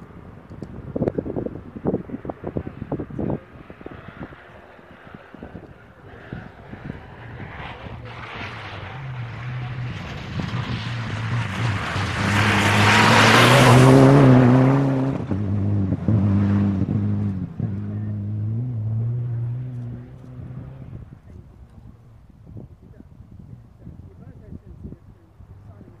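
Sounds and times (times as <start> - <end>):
rally car engine passing: 1.2 - 22.1
tyres crunching gravel: 8.0 - 14.4.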